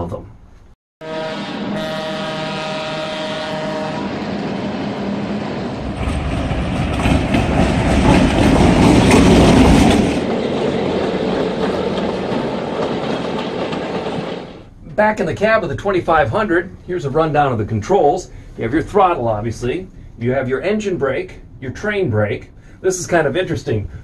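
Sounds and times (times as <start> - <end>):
locomotive air horn: 1.0 - 4.4
train passing: 1.0 - 24.0
wheels clacking over rail joints: 4.1 - 14.7.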